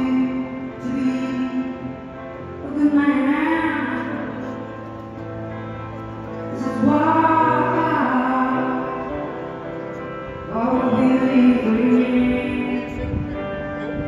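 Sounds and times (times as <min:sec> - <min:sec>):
woman singing live: 0:00.0 - 0:04.6, 0:06.5 - 0:09.4, 0:10.5 - 0:14.0
soft instrumental accompaniment: 0:00.0 - 0:14.0.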